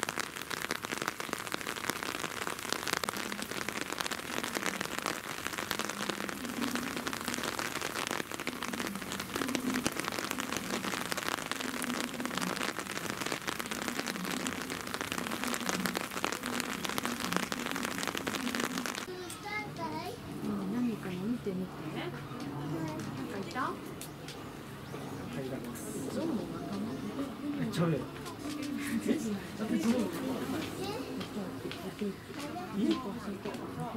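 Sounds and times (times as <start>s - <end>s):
dense crackling patter: 0.0s - 24.5s.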